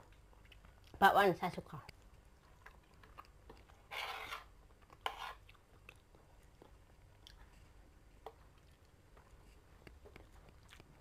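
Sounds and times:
chewing: 0:00.0 - 0:01.0, 0:01.8 - 0:11.0
cutlery scraping ceramic plate: 0:03.9 - 0:05.4.

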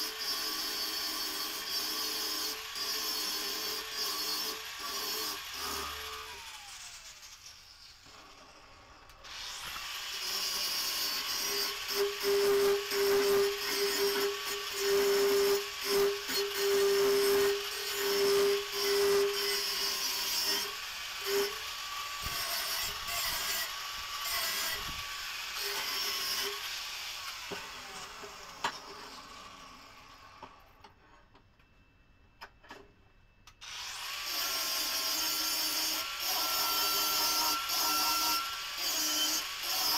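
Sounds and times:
angle grinder grinding metal: 0:09.3 - 0:29.7, 0:33.6 - 0:39.9.

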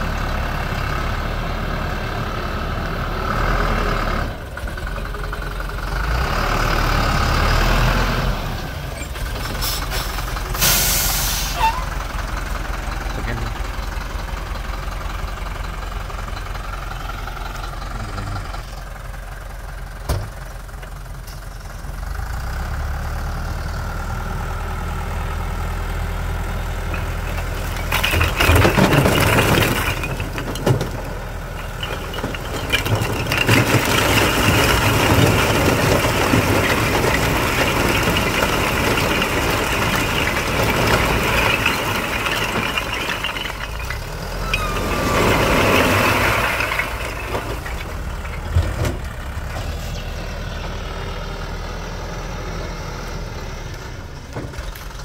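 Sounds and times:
diesel truck engine running: 0:00.0 - 0:55.0
bricks clattering: 0:26.7 - 0:49.7.

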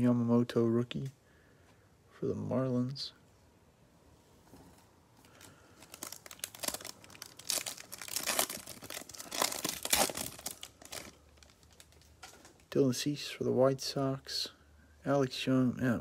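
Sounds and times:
card pack wrapper crinkling and tearing: 0:05.2 - 0:12.7.

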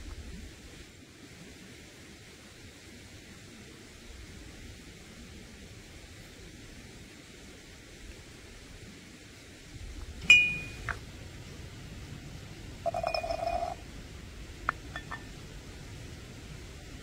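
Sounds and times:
utensils clinking: 0:10.2 - 0:10.9, 0:12.9 - 0:13.8, 0:14.9 - 0:15.3.

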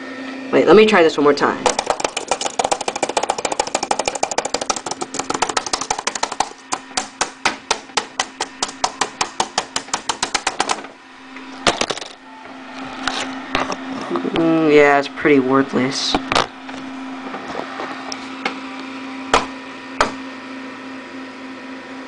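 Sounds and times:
laptop keyboard keys clicking: 0:01.7 - 0:10.8.

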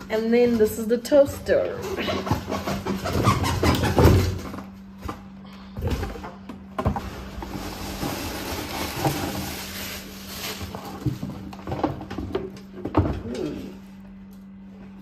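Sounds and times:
paper wrapping rustling: 0:07.4 - 0:11.6.

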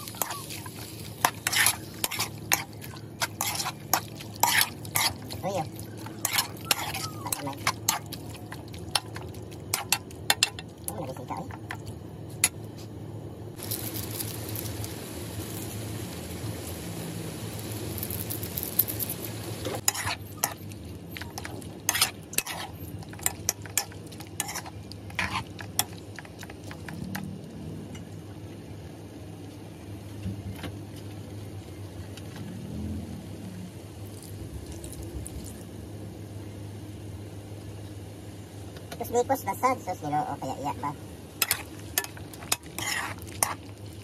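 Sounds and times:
meat sizzling in a pan: 0:00.0 - 0:07.0, 0:13.6 - 0:25.9, 0:41.4 - 0:44.0
spatula scraping and tapping pan: 0:00.1 - 0:05.4.

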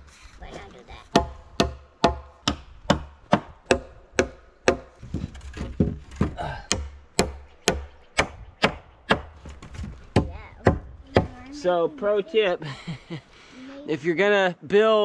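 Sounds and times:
hammering nail into wood: 0:01.1 - 0:05.0, 0:06.6 - 0:09.4.

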